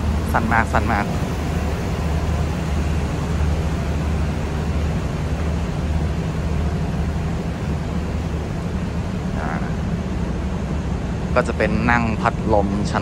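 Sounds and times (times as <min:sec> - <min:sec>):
idling train machinery hum: 0:00.0 - 0:13.0.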